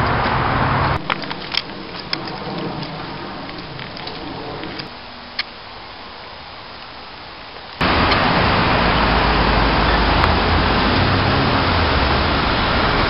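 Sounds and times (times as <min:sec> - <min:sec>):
city street traffic: 0:00.0 - 0:13.0.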